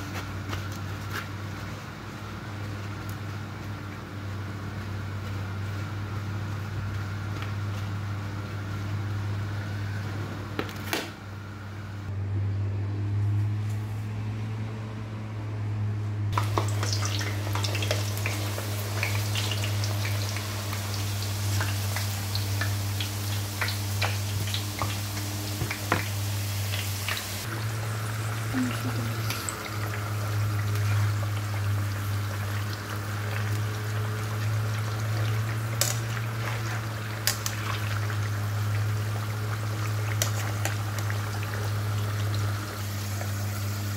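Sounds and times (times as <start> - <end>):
potato slices sizzling in oil: 16.4 - 43.9.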